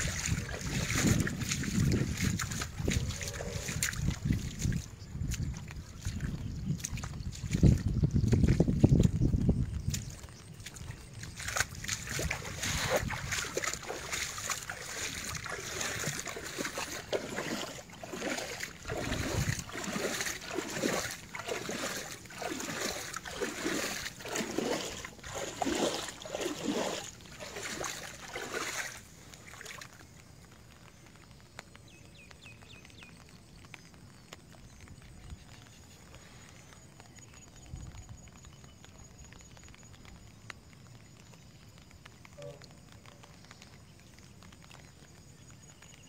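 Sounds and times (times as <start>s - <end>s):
footsteps splashing in water: 0.0s - 31.7s.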